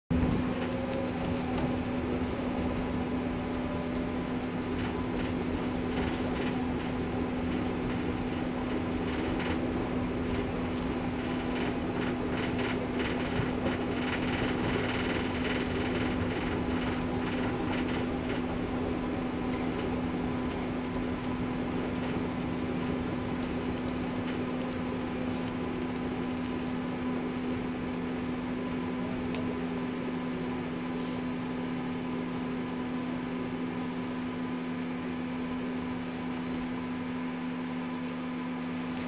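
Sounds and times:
tram humming: 0.1s - 38.9s.

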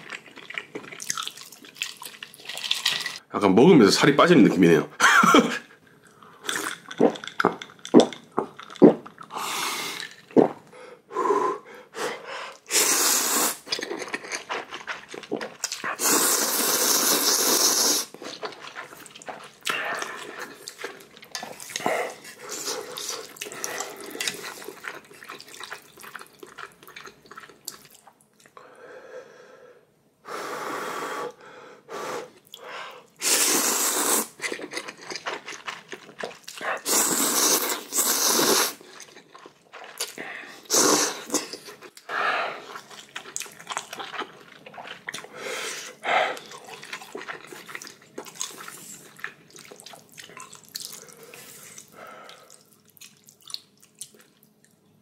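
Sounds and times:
chewing and mouth sounds: 0.0s - 3.2s, 6.0s - 10.7s, 13.4s - 28.6s, 33.8s - 54.9s
slurping noodles: 12.5s - 26.2s, 33.2s - 52.6s.

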